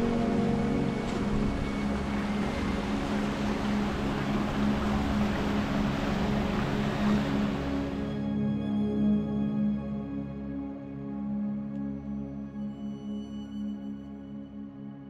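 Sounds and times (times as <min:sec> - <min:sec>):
waterfall roaring: 0:00.0 - 0:08.0
background music: 0:00.0 - 0:15.0.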